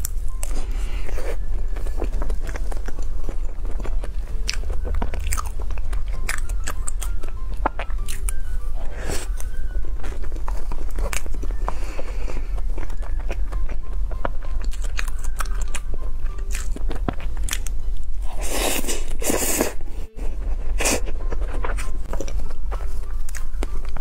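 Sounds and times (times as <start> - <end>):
wet chewing: 0.0 - 19.8.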